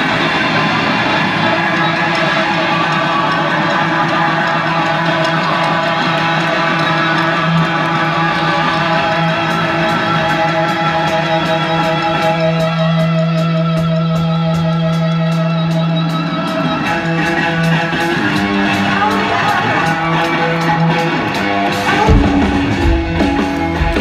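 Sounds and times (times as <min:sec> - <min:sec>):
live rock band: 0:00.0 - 0:24.0.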